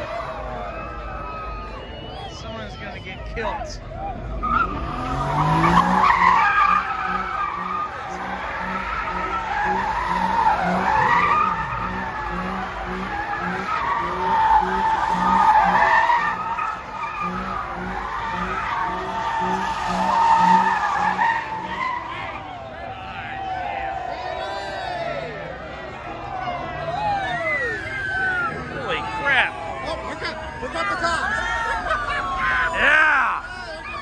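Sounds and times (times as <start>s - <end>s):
tires squealing: 0.0s - 34.0s
car engine revving: 3.8s - 23.9s.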